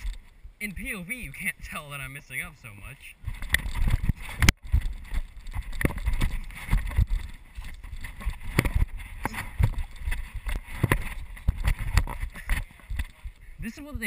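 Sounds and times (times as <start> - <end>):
clothing rubbing on microphone: 3.2 - 14.0
wind noise on microphone: 3.2 - 14.0
footfalls and body thumps: 3.3 - 13.4.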